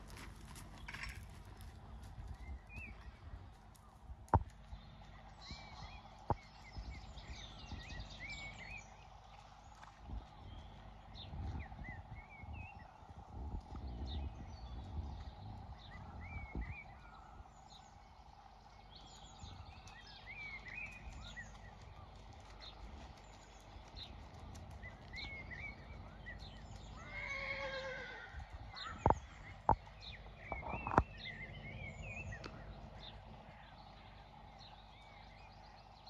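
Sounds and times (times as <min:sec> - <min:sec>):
birds chirping: 0:00.0 - 0:36.0
horse whinnying: 0:27.0 - 0:28.4.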